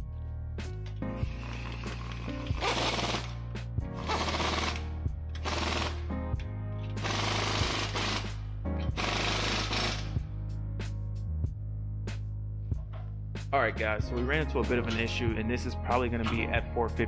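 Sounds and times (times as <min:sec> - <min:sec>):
background music: 0:00.0 - 0:17.0
pneumatic impact wrench hammering: 0:01.2 - 0:03.3, 0:04.0 - 0:04.8, 0:05.4 - 0:06.0, 0:07.0 - 0:08.4, 0:09.0 - 0:10.2.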